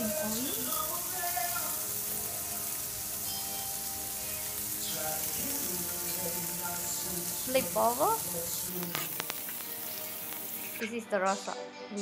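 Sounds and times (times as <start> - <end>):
steaks sizzling on a grill: 0.0 - 10.8
background music: 0.0 - 12.0.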